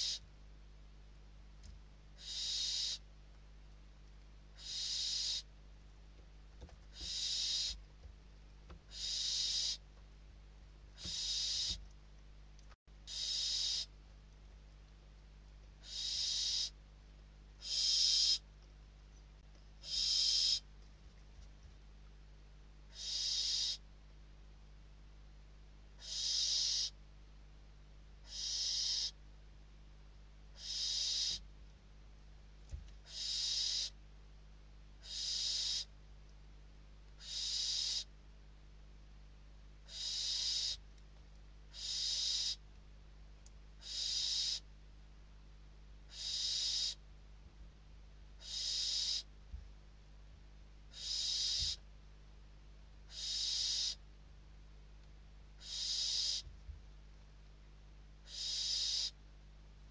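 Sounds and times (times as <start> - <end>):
owl chick hissing call: 0.0 - 0.2, 2.2 - 3.0, 4.6 - 5.5, 6.9 - 7.8, 8.9 - 9.8, 11.0 - 11.8, 13.1 - 13.9, 15.8 - 16.8, 17.6 - 18.4, 19.8 - 20.6, 22.9 - 23.8, 26.0 - 27.0, 28.3 - 29.2, 30.6 - 31.4, 33.1 - 34.0, 35.0 - 35.9, 37.2 - 38.1, 39.9 - 40.8, 41.7 - 42.6, 43.8 - 44.6, 46.1 - 47.0, 48.4 - 49.3, 50.9 - 51.8, 53.1 - 54.0, 55.6 - 56.4, 58.2 - 59.2.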